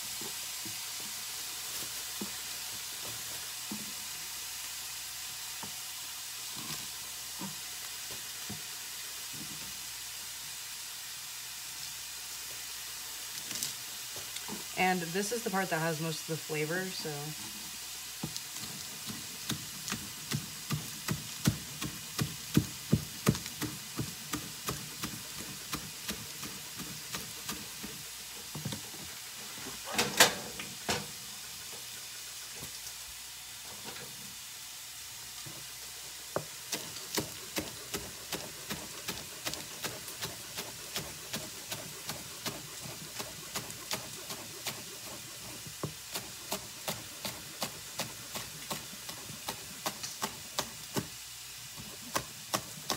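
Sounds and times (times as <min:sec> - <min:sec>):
frying sizzle: 0:00.0 - 0:52.9
knife chopping on plastic board: 0:19.0 - 0:27.9, 0:36.4 - 0:44.9.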